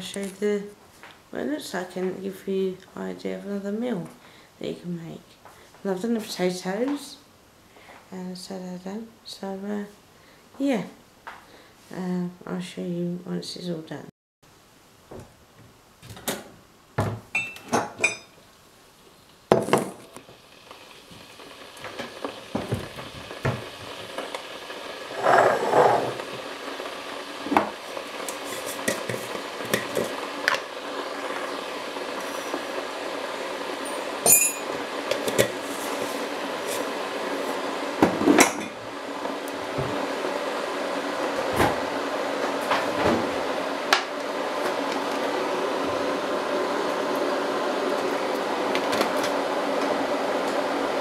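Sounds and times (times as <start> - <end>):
electric kettle heating: 19.3 - 51.0.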